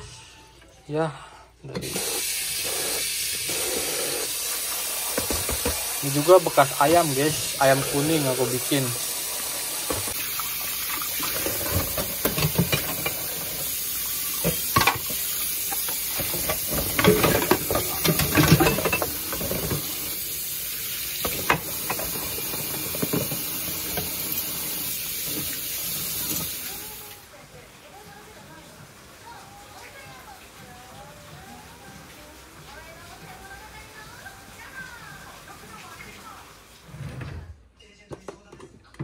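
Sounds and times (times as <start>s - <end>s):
dishes clinking and clattering: 5.0s - 8.8s, 9.8s - 26.6s
tap running into steel sink: 5.1s - 5.9s.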